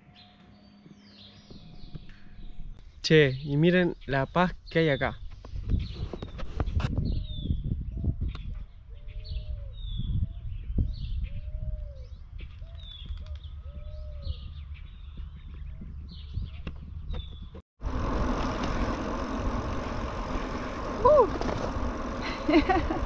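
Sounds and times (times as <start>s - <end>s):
light wind rumble: 1.5s - 23.0s
wind rushing on microphone: 4.6s - 23.0s.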